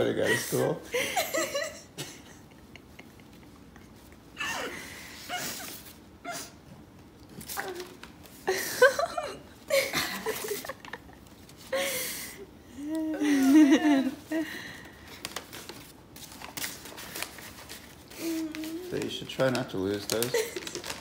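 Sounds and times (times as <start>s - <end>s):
woman sobbing and sniffling: 0.2s - 6.6s, 11.6s - 15.0s, 18.1s - 18.8s.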